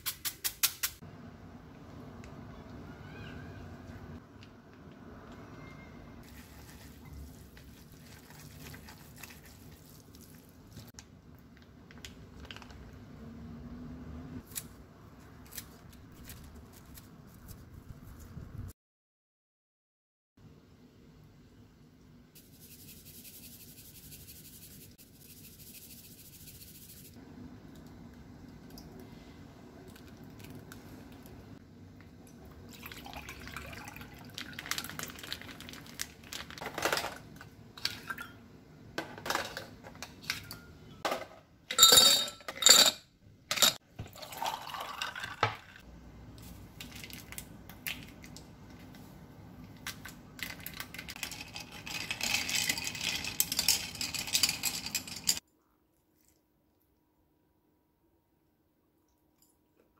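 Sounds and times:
liquid pouring over ice: 32.7 - 36.6, 44.1 - 45.8
ice cubes clinking into a glass: 51.1 - 55.4.

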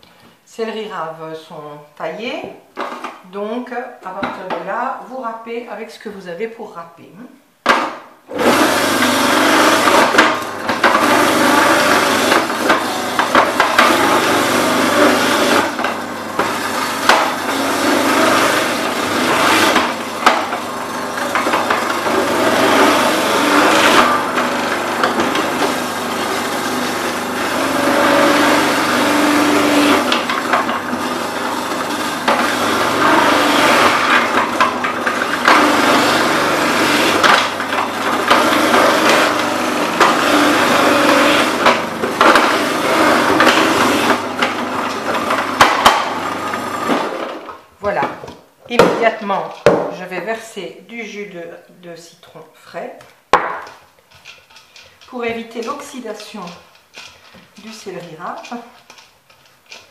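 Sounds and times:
electric grater shredding vegetables: 8.3 - 48.0, 53.3 - 59.9.

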